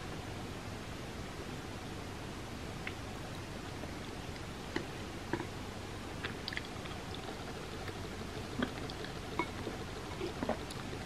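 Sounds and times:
steady background hiss: 0.0s - 11.0s
person chewing: 6.2s - 11.0s.

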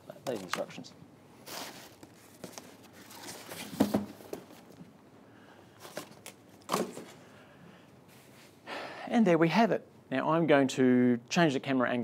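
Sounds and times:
cardboard rustling and knocking: 1.7s - 4.6s
cardboard thump: 3.6s - 4.5s, 6.7s - 7.1s.

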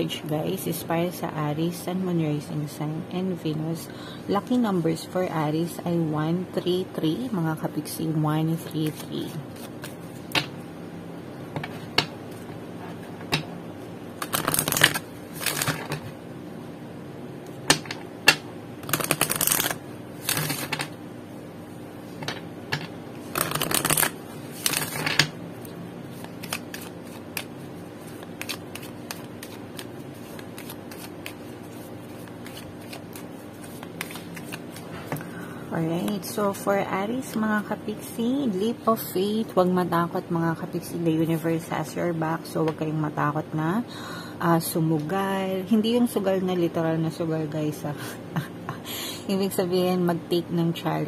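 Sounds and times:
cards riffle shuffling: 14.2s - 16.1s, 18.8s - 20.9s, 23.2s - 25.2s, 26.1s - 35.2s
cards tapping and sliding: 14.2s - 16.1s, 17.7s - 20.9s, 22.2s - 25.3s, 26.1s - 35.2s.

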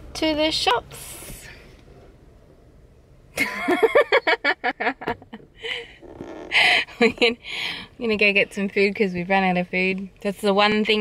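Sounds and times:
person laughing: 3.4s - 5.9s.

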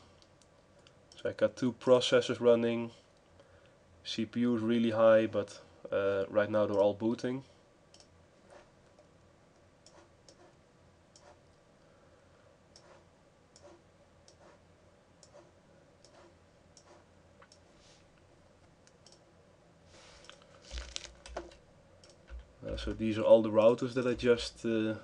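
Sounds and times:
computer mouse clicks: 7.9s - 8.1s, 11.1s - 11.4s, 18.8s - 19.3s, 21.2s - 22.5s
keyboard clicks and knocks: 20.8s - 23.0s.

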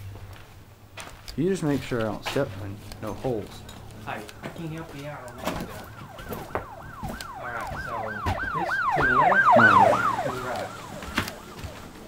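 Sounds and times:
siren yelping: 4.0s - 12.0s.

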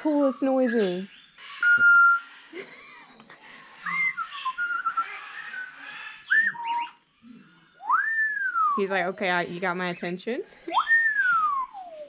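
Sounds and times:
parrot whistling: 1.6s - 2.3s.

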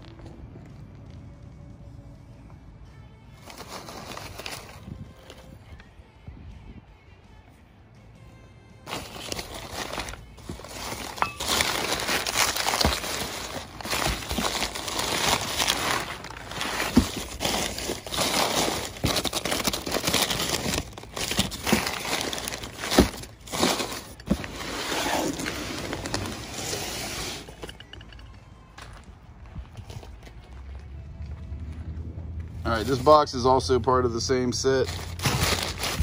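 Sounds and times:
newspaper rustling and crinkling: 3.4s - 5.4s, 8.9s - 27.8s, 34.8s - 36.0s.

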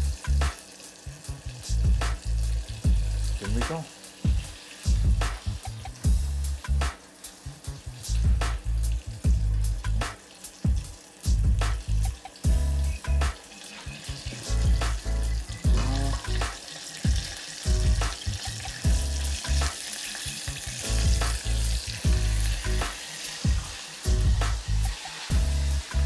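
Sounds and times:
tofu deep-frying in oil: 0.0s - 26.0s
dull low thumps: 1.7s - 3.6s, 4.3s - 5.4s, 6.1s - 6.8s, 8.1s - 10.0s, 11.3s - 13.3s, 14.5s - 16.5s, 20.9s - 22.8s, 23.5s - 24.7s.

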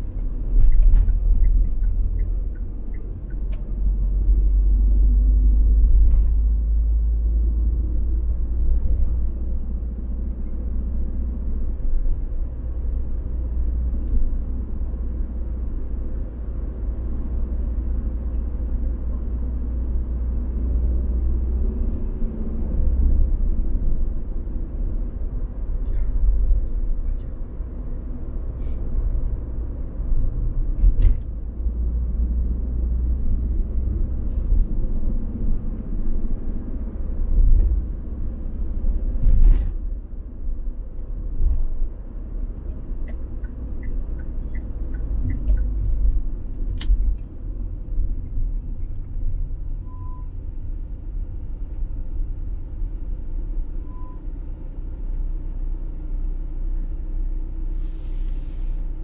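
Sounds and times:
car road and engine rumble: 0.0s - 59.0s
faint beeps: 53.8s - 54.3s.

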